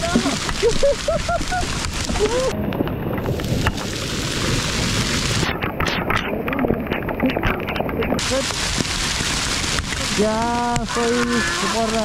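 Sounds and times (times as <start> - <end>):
heavy rain: 0.0 - 12.0
raindrops ticking: 0.0 - 12.0
wind buffeting microphone: 0.0 - 12.0.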